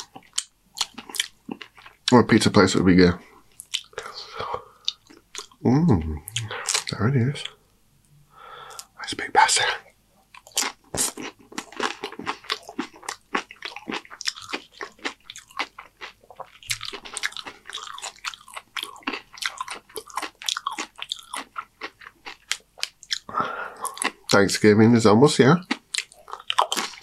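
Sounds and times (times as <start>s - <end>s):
chewing crunchy chips: 0.0s - 2.2s, 10.3s - 24.4s, 25.6s - 27.0s.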